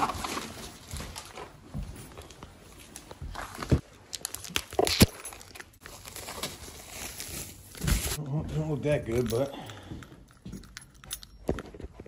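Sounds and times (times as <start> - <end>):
plastic wrapping crinkling: 2.2 - 8.2.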